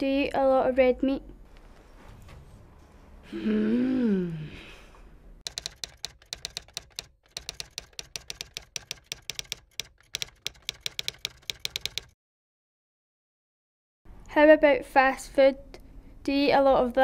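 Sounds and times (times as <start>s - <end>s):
typing on a keyboard: 5.4s - 12.2s.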